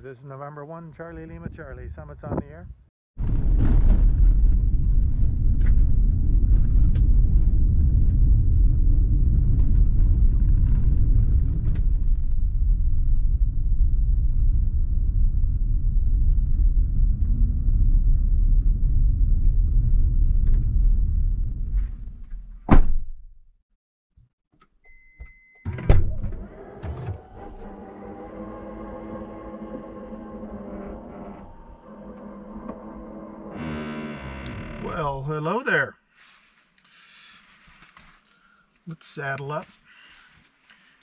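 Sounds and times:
car interior rumble on dirt road: 3.2 - 22.5.

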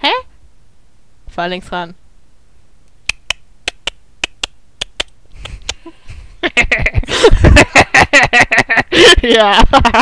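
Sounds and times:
person speaking: 9.0 - 10.0.

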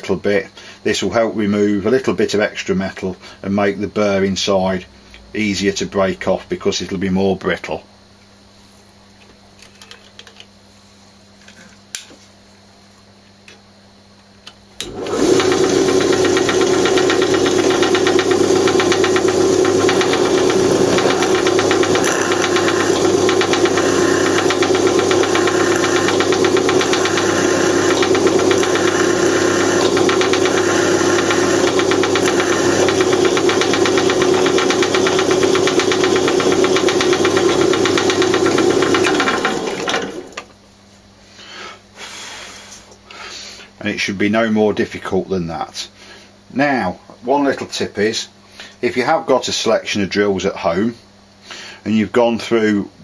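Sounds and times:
electric drill drilling metal: 14.8 - 40.5.

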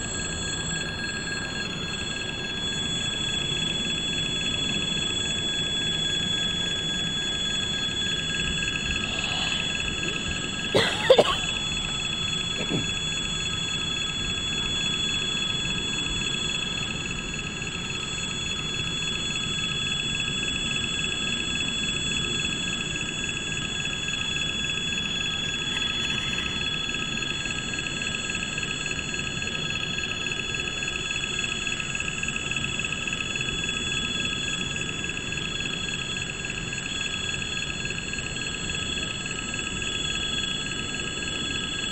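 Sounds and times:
loud screech: 7.8 - 12.5, 25.0 - 27.6.

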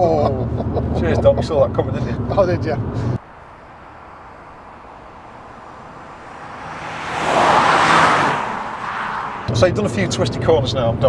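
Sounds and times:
faint outdoor hiss: 3.2 - 6.4
car passing at speed: 3.2 - 9.6.

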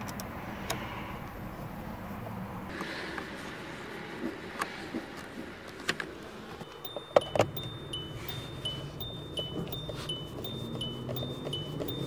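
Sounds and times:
metallic clicks and knocks: 6.6 - 7.7
two-note warning chime: 6.7 - 12.0.

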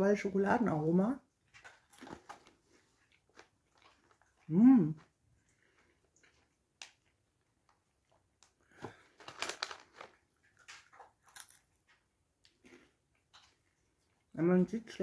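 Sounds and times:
crunchy snack chewing: 1.6 - 4.5, 7.7 - 11.8
plastic snack bag rustling: 1.6 - 11.8.

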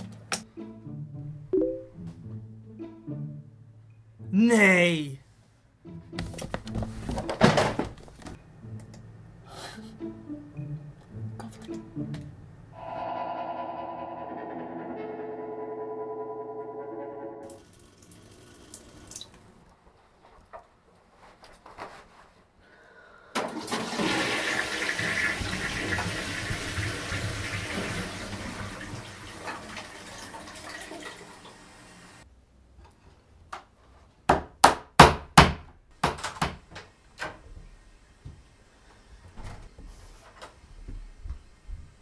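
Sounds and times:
toilet flushing: 23.4 - 32.2.

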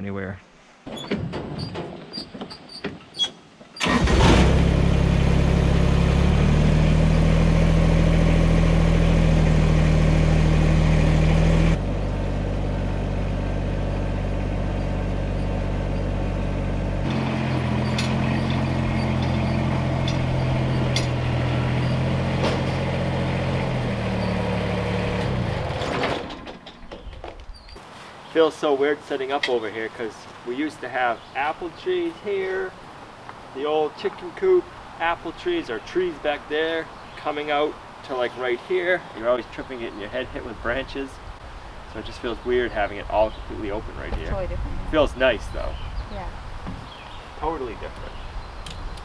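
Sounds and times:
tractor engine starting and running: 0.9 - 27.7.

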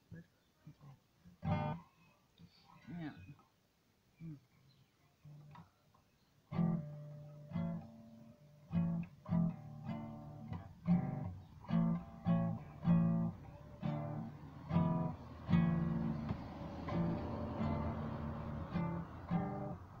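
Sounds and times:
guitar strummed chords: 1.4 - 1.8, 6.5 - 20.0.

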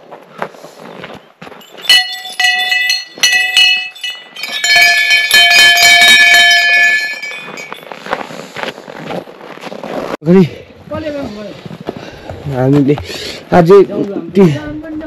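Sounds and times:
small metal bells ringing: 1.5 - 8.2.

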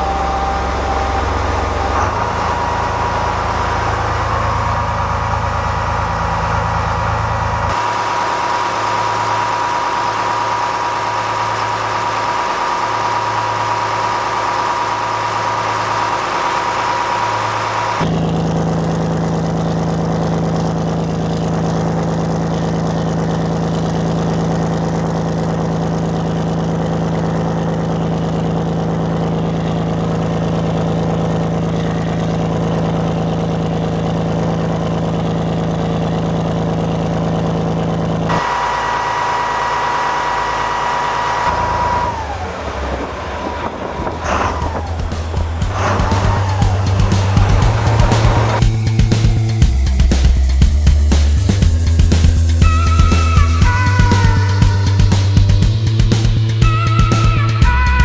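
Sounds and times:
diesel engine idling: 0.0 - 58.0
high engine whine: 0.0 - 58.0
exhaust water splashing: 38.3 - 52.4.

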